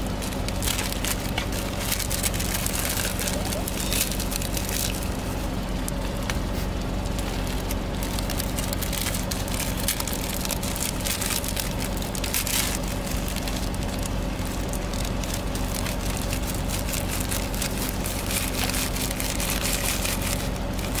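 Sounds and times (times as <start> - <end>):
plastic packets crinkling: 0.0 - 21.0
steady low hum: 0.0 - 21.0
snack crumbling into a palm: 5.8 - 21.0.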